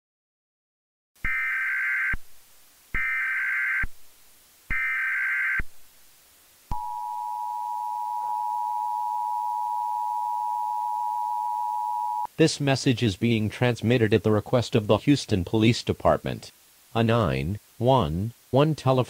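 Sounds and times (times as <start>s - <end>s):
two-tone attention signal: 6.7s - 12.3s.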